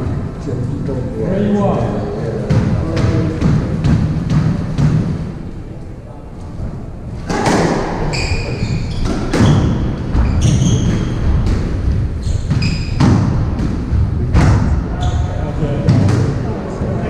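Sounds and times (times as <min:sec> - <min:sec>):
squash ball smacking rackets and walls: 0:02.4 - 0:05.4, 0:07.2 - 0:15.0, 0:15.8 - 0:16.4
shoes squeaking on wooden floor: 0:08.0 - 0:13.2.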